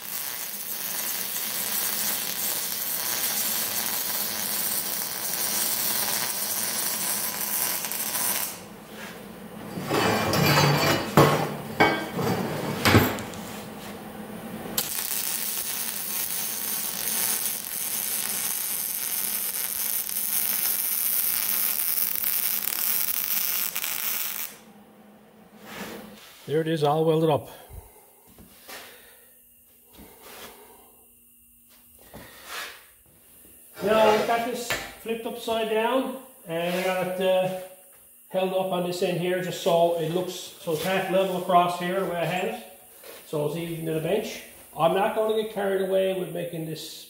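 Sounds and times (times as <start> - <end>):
welder arc on steel: 0.0 - 12.0, 14.7 - 24.7, 32.4 - 46.7.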